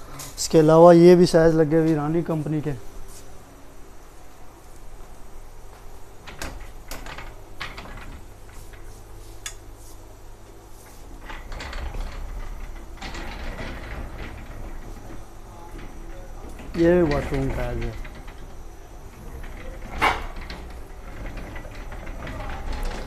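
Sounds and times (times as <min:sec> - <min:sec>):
metal display panel clattering: 0:11.2 - 0:23.0.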